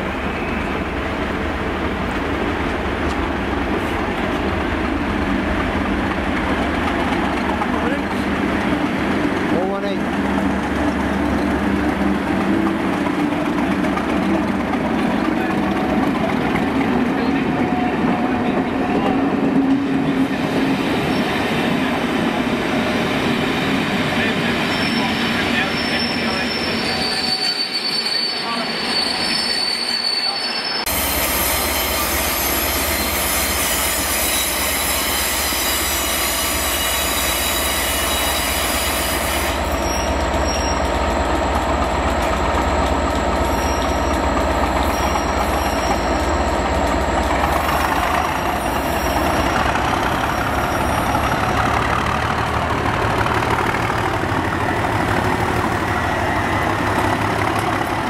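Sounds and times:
diesel locomotive engine rumble: 0.0 - 29.6, 30.8 - 58.0
train wheel squeal: 23.1 - 41.5, 42.2 - 58.0.

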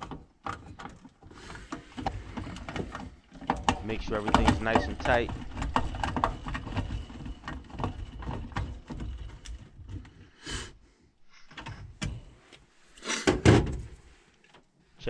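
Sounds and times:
hands rattling sheet metal: 1.8 - 10.0.

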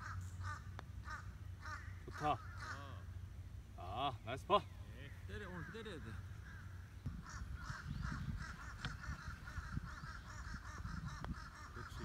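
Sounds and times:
birds calling: 0.0 - 12.0.

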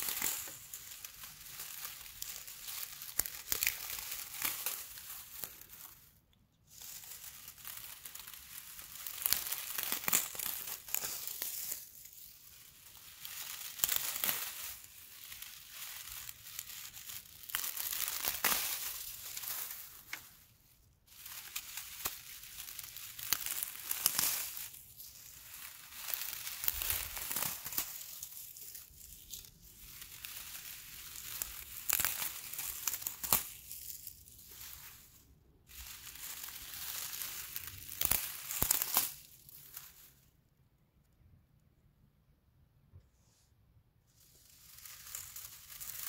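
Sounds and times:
dry grass crackling: 0.0 - 40.4, 44.2 - 46.0.

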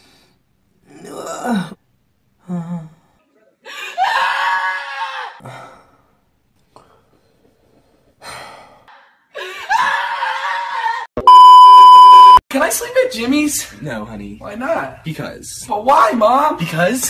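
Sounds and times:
loud steady beep: 11.2 - 12.4.

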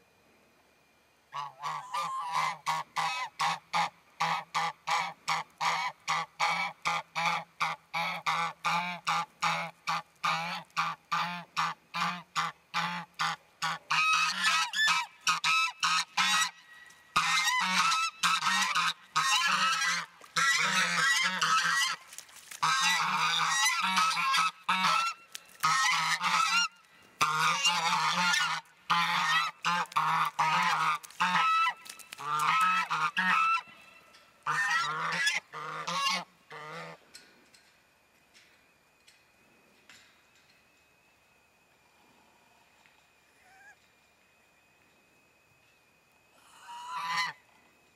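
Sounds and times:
geese honking: 1.3 - 37.0, 46.4 - 47.5.

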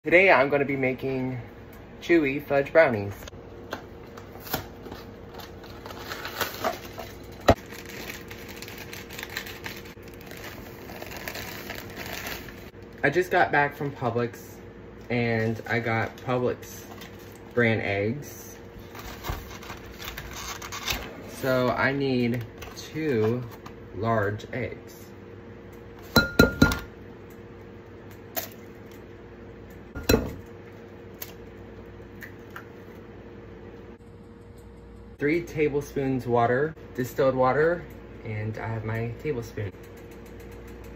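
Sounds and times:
plastic bag crinkling: 5.3 - 12.7.

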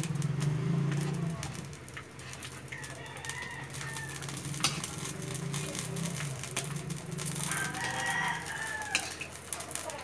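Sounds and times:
rooster crowing: 2.7 - 4.5, 7.4 - 9.3
metal spatula scraping a wok: 3.8 - 9.7.

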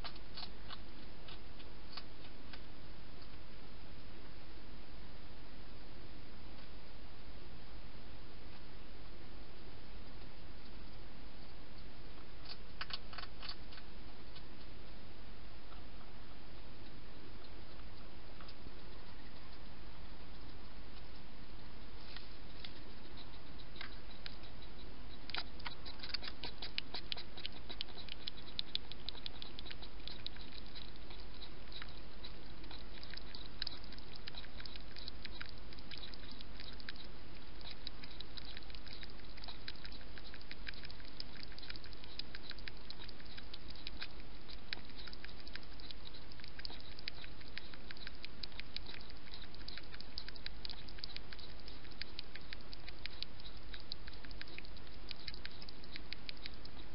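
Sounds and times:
hedgehog mouth clicks and smacks: 12.4 - 13.8, 22.6 - 56.9.

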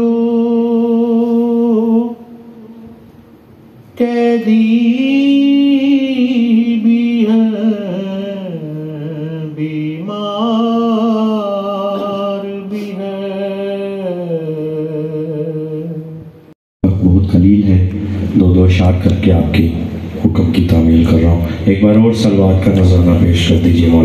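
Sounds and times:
man chanting into a microphone: 0.0 - 2.8, 4.0 - 16.2, 16.8 - 24.0.

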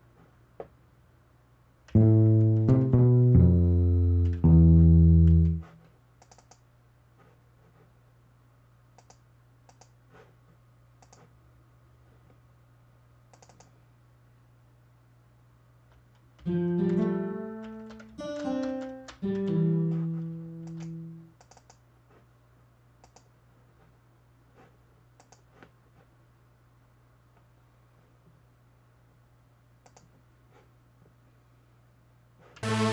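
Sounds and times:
acoustic guitar chords: 2.0 - 5.7, 16.5 - 21.3, 32.6 - 32.9
faint mouse clicks: 6.2 - 6.7, 9.0 - 10.3, 11.0 - 11.3, 13.3 - 13.8, 20.6 - 21.8, 23.0 - 23.3, 25.2 - 25.8, 29.8 - 30.2.

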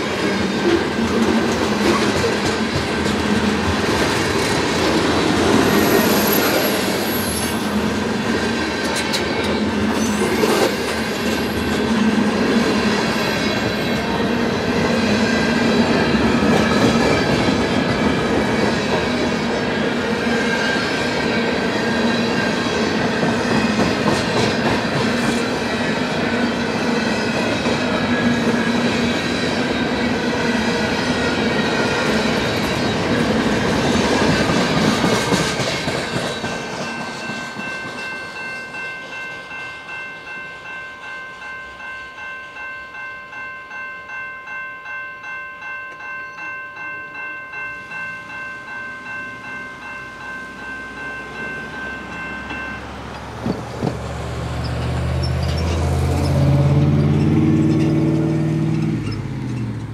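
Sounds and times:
train wheels clattering over rails: 0.0 - 38.2, 52.4 - 59.9
railroad crossing bell ringing: 0.0 - 53.5, 54.3 - 59.9.

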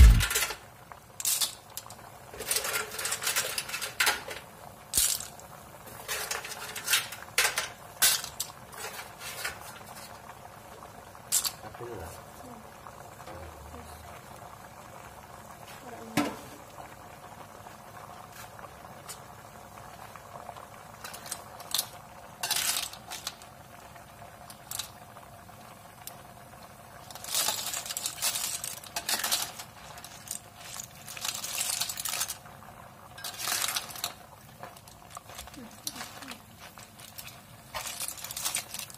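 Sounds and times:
clam shells clattering in a wok: 0.0 - 10.3, 11.3 - 11.6, 20.9 - 25.0, 27.0 - 38.9.

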